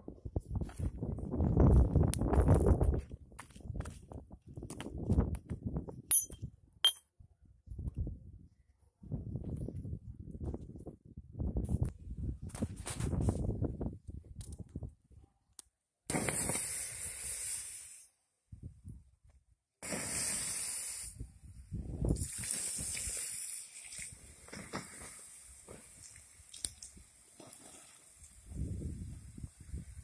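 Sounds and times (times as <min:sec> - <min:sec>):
water hissing on hot embers: 0:16.1 - 0:18.1, 0:19.8 - 0:21.2, 0:22.1 - 0:30.0.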